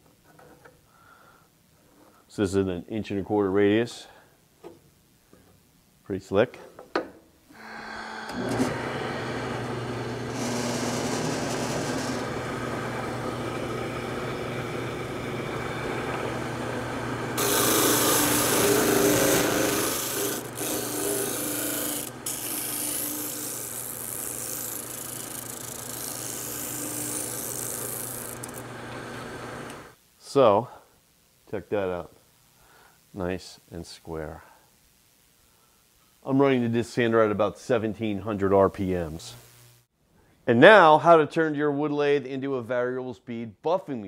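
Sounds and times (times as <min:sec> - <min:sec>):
lathe humming: 0:07.6 - 0:29.9
wood sanding: 0:10.3 - 0:29.5.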